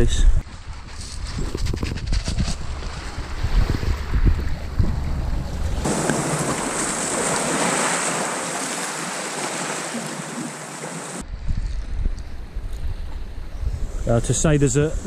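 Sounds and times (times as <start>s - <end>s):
wind rumble on microphone: 0.0s - 5.9s, 11.2s - 15.0s
surf washing over rocks: 5.5s - 11.2s.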